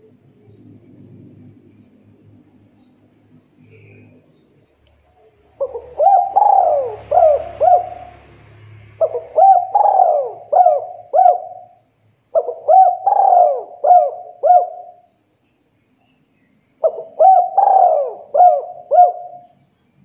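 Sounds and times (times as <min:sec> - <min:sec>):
dove cooing: 0:05.3 - 0:15.1, 0:16.8 - 0:19.6.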